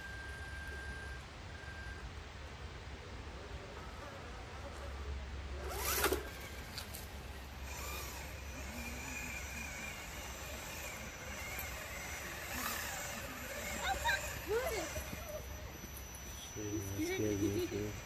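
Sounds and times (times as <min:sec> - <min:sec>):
high motor and gear whine: 0:00.0 - 0:02.1, 0:03.9 - 0:18.0
electric motor revving whine: 0:05.6 - 0:18.0.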